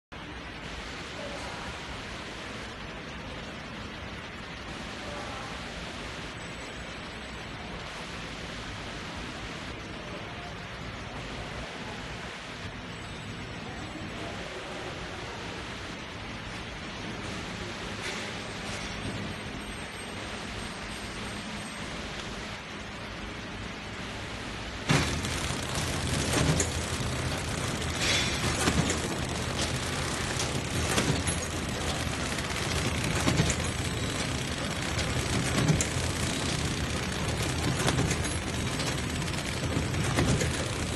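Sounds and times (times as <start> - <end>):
machine workshop background noise: 0.1 - 40.9
packaging machine running: 24.8 - 40.9
short mechanical clacks: 24.8 - 40.9.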